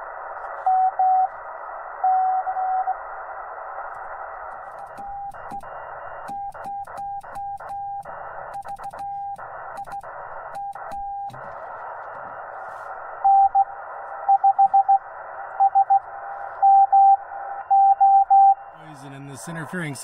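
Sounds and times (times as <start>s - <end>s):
receiver hiss: 0.0s - 20.0s
morse code tones: 16.6s - 20.0s.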